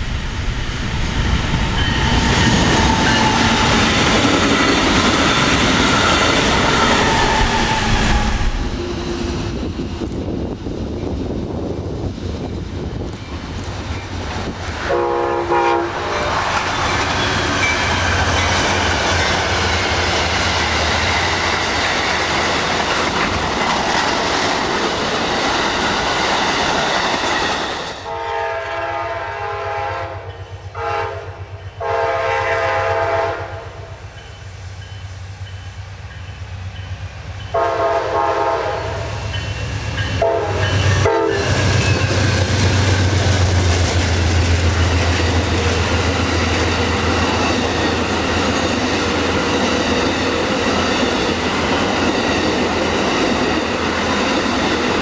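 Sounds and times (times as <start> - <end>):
train wheels rumbling on rail: 0.0 - 55.0
locomotive horn chord: 14.9 - 16.3, 28.0 - 33.8, 37.5 - 39.1, 40.2 - 41.5.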